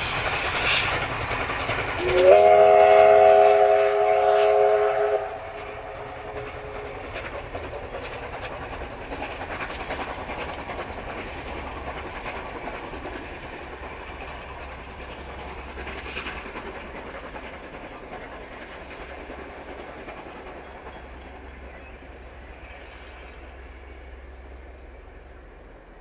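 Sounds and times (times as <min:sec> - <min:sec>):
steam locomotive working: 0:00.0 - 0:26.0
train wheels on rails: 0:00.0 - 0:26.0.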